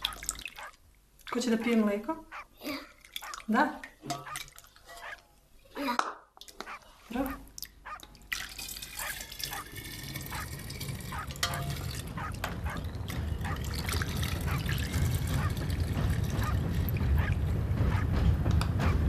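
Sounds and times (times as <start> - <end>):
milk trickling into a bottle: 8.3 - 11.1, 13.6 - 16.3
low rumble: 10.6 - 19.0.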